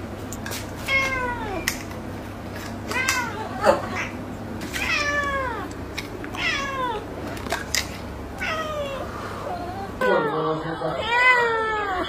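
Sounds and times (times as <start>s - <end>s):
cat meowing: 4.8s - 5.7s, 6.4s - 7.1s, 8.4s - 9.1s, 10.0s - 12.0s.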